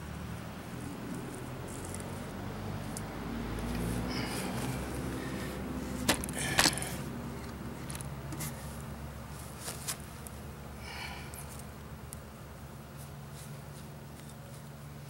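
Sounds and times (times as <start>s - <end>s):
steady low hum: 0.0s - 15.0s
wooden parts clicking and knocking: 6.0s - 8.1s.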